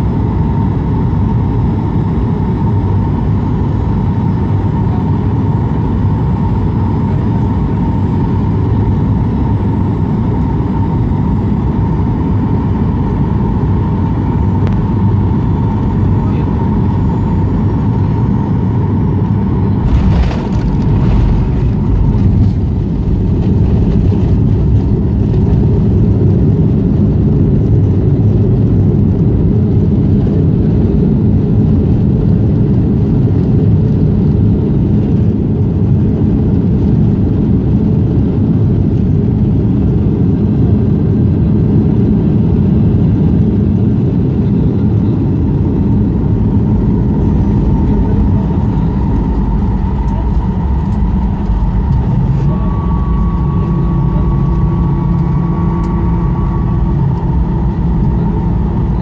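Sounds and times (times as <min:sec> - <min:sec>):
faint whine: 0:00.0 - 0:28.8, 0:43.8 - 0:59.0
jet engine and airflow noise: 0:00.0 - 0:59.0
wheels touching down with rumble: 0:19.8 - 0:25.7.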